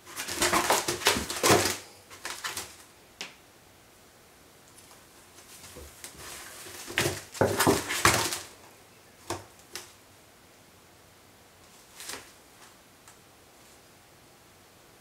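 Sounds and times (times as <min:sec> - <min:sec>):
cat scratching cardboard box: 0:00.0 - 0:02.8, 0:05.8 - 0:08.4.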